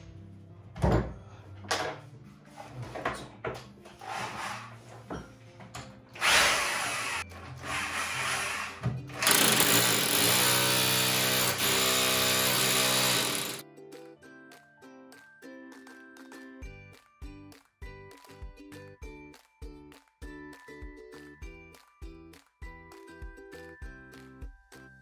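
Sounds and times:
electric drill boring into wall: 6.2 - 13.6.

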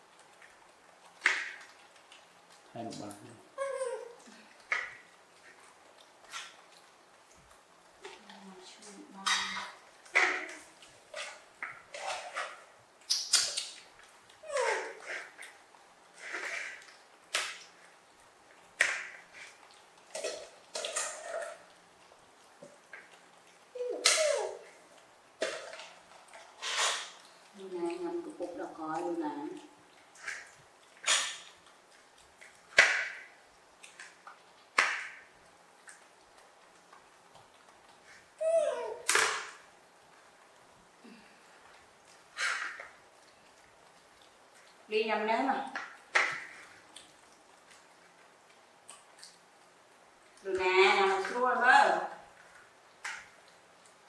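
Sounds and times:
monkey call falling in pitch: 23.8 - 24.6, 38.4 - 39.1.

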